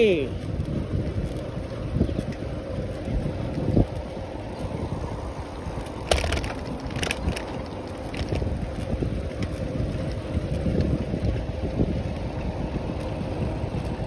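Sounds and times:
wind buffeting microphone: 0.0 - 14.0
sharp rattles: 5.6 - 8.5.

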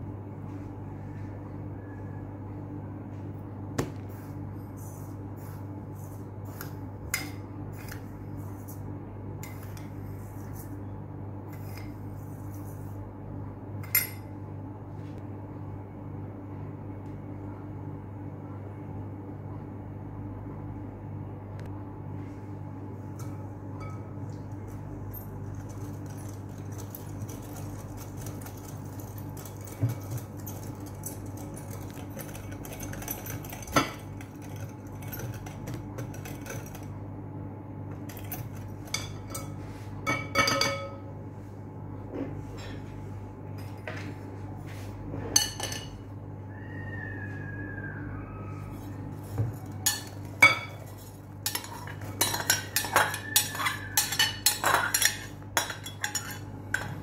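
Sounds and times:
steady low hum: 0.0 - 57.0
wire whisk beating in glass bowl: 23.2 - 36.9, 49.6 - 57.0
metal clinking against glass bowl: 28.2 - 36.8, 40.1 - 41.0, 49.6 - 57.0.

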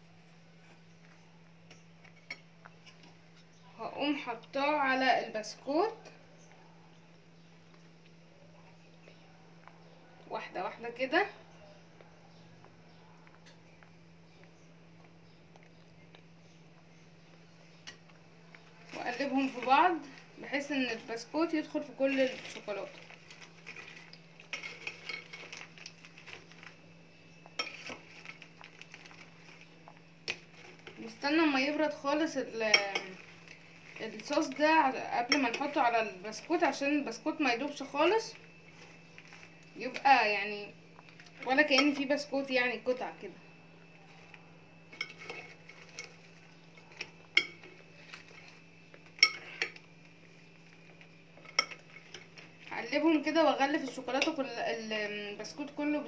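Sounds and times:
faint steady hum: 0.0 - 56.0
spoon clinking in a glass bowl: 46.9 - 47.7, 49.1 - 49.8, 51.4 - 52.2.

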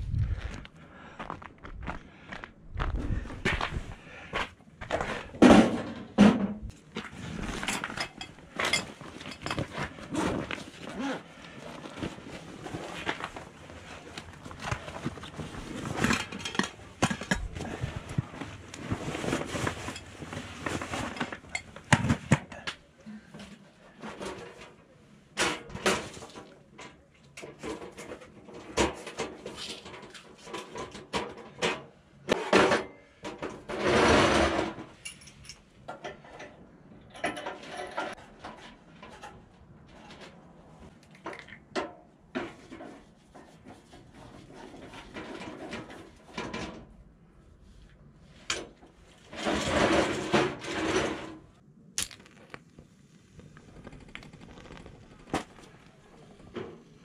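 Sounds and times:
rustling or scraping: 2.8 - 22.4, 42.3 - 51.7, 52.3 - 57.0
objects clicking and knocking: 14.1 - 22.8, 51.9 - 57.0.

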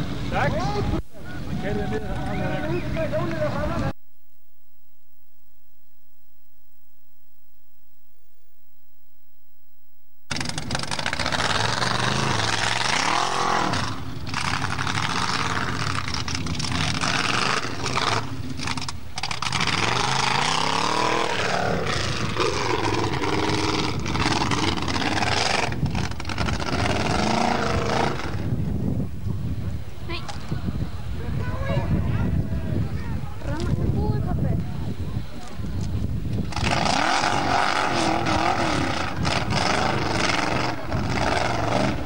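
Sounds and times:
buggy engine revving hard: 10.3 - 28.6, 36.4 - 42.0.

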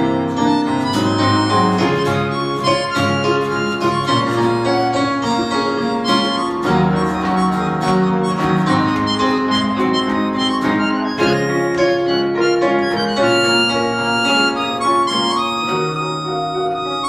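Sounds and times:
accordion: 0.0 - 17.0
violin: 0.0 - 17.0.

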